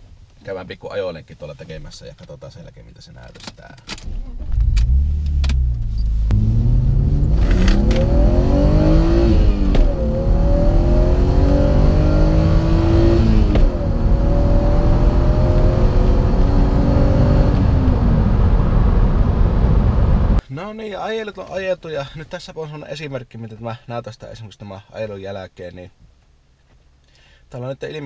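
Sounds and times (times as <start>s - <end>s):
car engine accelerating hard: 4.3s - 20.4s.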